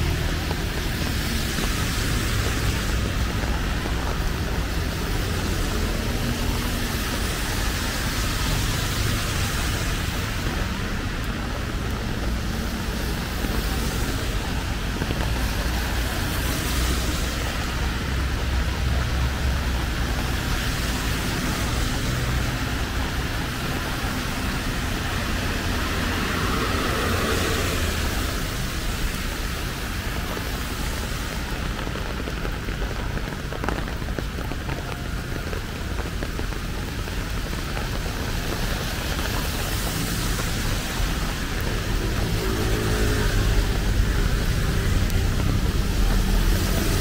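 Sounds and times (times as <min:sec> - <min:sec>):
cars passing on wet road: 0:00.0 - 0:47.0
steady rain: 0:00.0 - 0:47.0.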